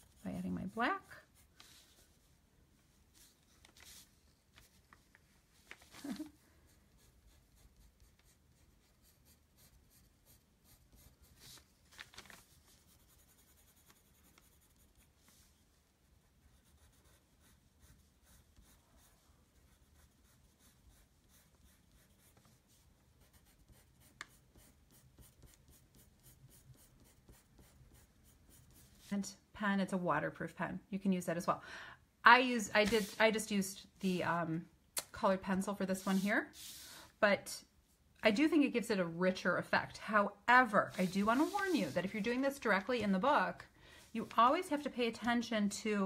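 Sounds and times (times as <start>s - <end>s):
pencil scratching on paper: 0.0s - 2.1s, 6.8s - 11.7s, 12.7s - 15.4s, 16.1s - 29.1s, 32.8s - 33.2s, 40.8s - 42.8s.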